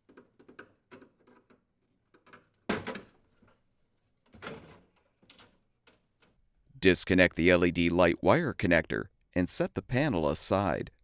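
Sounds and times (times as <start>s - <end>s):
plastic clicks and knocks: 0.0s - 3.6s.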